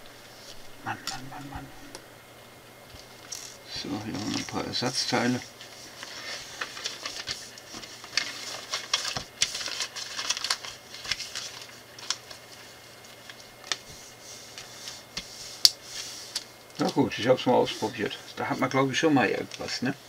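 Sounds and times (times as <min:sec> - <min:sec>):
rustling paper and plastic bags: 0:03.0 - 0:15.1.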